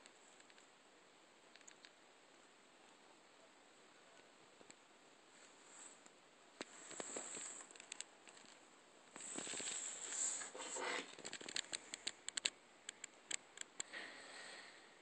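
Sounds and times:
small sharp clicks and taps: 0:01.5 - 0:02.0, 0:11.1 - 0:13.9
glasses case rustling scrape: 0:09.2 - 0:11.6.

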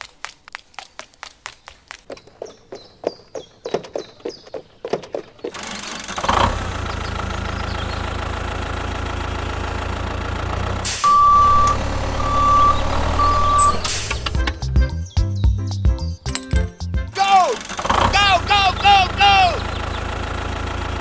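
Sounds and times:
vehicle engine running: 0:05.5 - 0:14.6, 0:17.2 - 0:21.0
reversing alarm beeping: 0:11.0 - 0:14.0.

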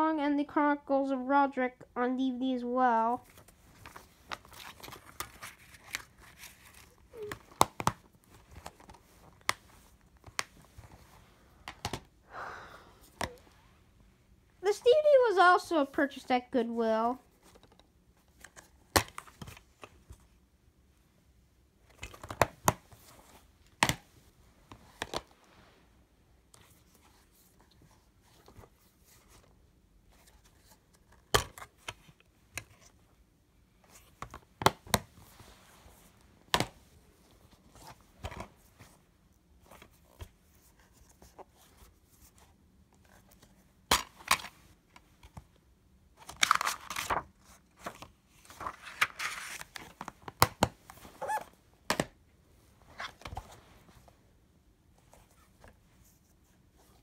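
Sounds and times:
tape sleeve rustling and scraping: 0:03.8 - 0:07.3, 0:51.0 - 0:51.5.

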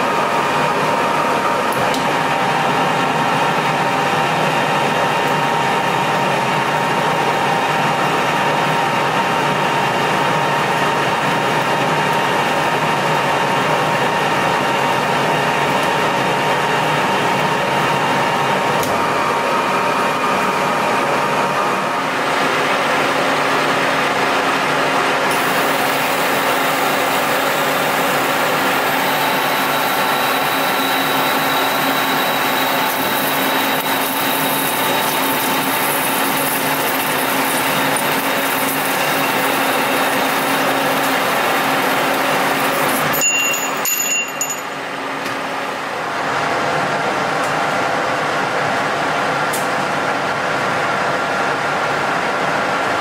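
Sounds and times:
metal lathe humming: 0:25.3 - 0:46.0.

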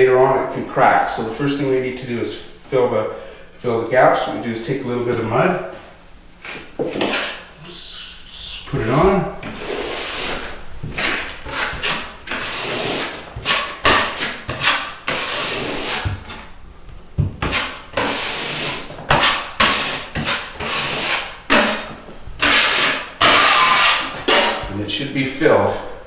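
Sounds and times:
drywall knife scraping: 0:06.4 - 0:07.8, 0:09.0 - 0:16.5, 0:17.3 - 0:24.8.

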